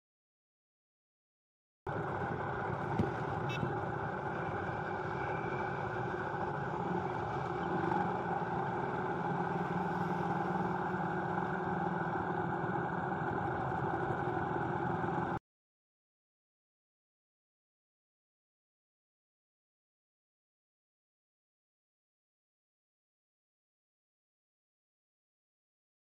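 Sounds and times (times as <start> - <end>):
vehicle engine and road noise: 1.9 - 15.4.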